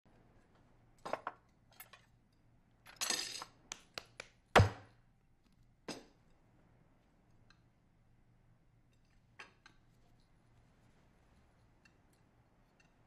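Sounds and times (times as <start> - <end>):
hard knock against table: 4.6 - 4.9.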